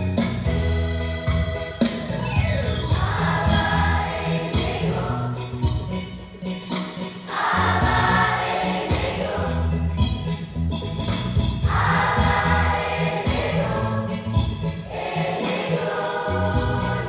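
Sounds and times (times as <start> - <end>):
electronic keyboard accompaniment: 0.0 - 17.0
children's choir singing: 3.0 - 5.6, 7.2 - 9.8, 11.6 - 17.0.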